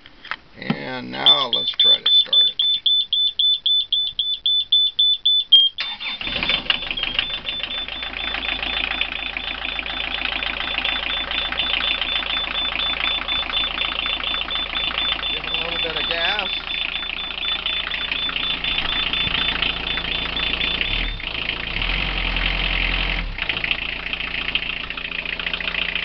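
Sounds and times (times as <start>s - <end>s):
warning buzzer beeping rapidly: 1.2s - 21.2s
diesel engine cranking and running: 5.8s - 26.0s.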